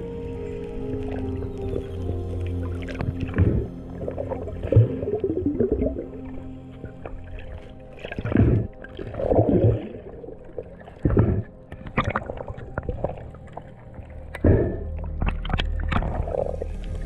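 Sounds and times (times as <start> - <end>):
muffled water rushing underwater: 0.0 - 17.0.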